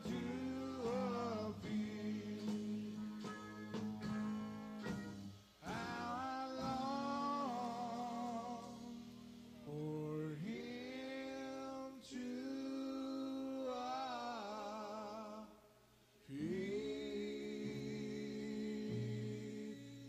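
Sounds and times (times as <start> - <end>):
band playing: 0.0 - 10.7
singing with vibrato: 0.0 - 20.0.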